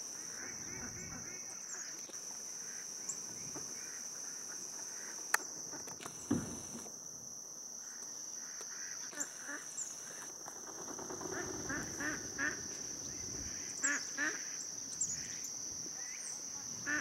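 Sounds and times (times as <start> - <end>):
camera handling thump: 6.3 - 6.8
bird calls: 7.8 - 17.0.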